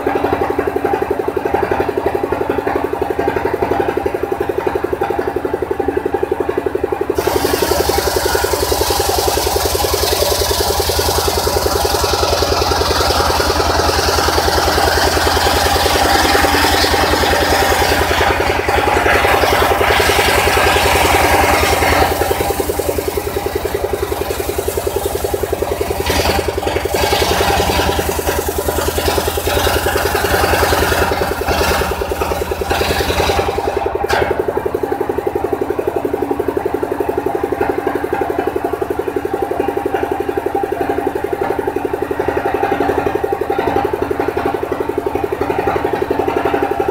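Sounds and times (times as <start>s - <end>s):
saw bench engine running: 0.0s - 46.9s
saw blade cutting log: 7.2s - 33.8s.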